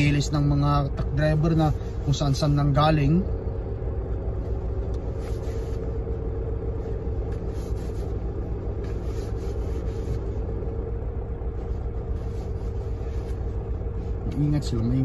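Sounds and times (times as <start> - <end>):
diesel engine idling: 0.0 - 15.0
tissue rubbing: 4.4 - 10.6, 11.5 - 14.2.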